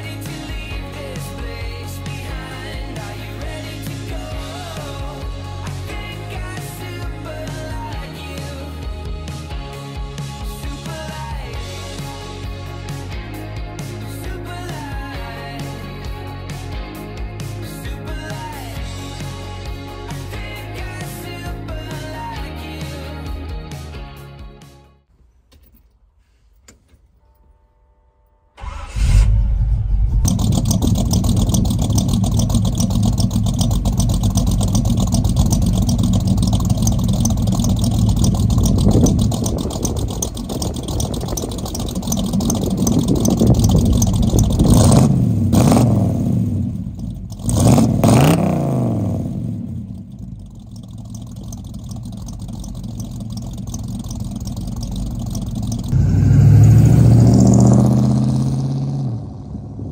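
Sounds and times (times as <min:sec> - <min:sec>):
car engine starting and revving: 0:28.6 - 0:59.9.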